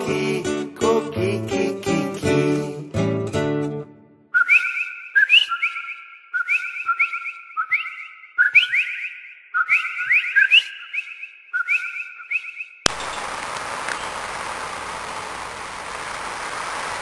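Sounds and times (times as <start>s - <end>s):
frogs calling: 12.9s - 17.0s.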